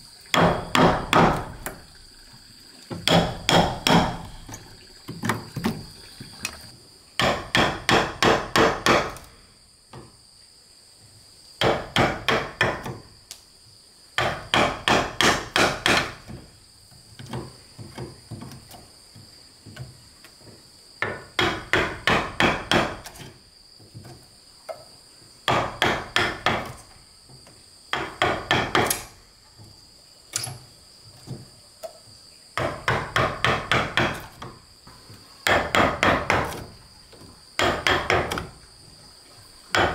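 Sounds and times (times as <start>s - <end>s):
high insect drone: 0.0s - 39.9s
hammer striking wood chisel: 0.3s - 1.8s, 3.0s - 4.5s, 7.2s - 9.3s, 11.6s - 13.0s, 14.2s - 16.4s, 21.0s - 23.2s, 25.5s - 26.8s, 27.9s - 29.1s, 32.6s - 34.6s, 35.4s - 36.7s, 37.6s - 38.5s.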